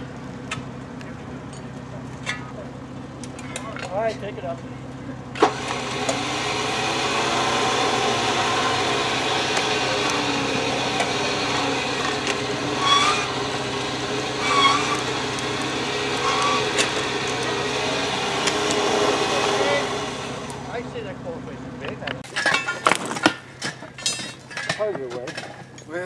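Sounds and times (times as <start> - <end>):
vehicle engine running under load: 0.0 - 26.0
short squeaks: 12.0 - 13.5, 14.3 - 17.4.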